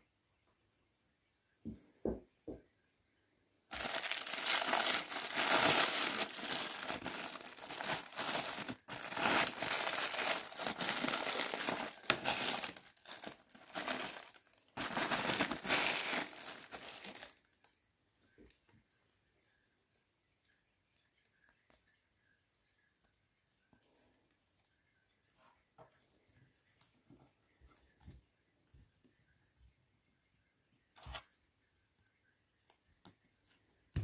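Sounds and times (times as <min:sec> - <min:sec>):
plastic wrap crinkling: 0:03.7 - 0:17.7.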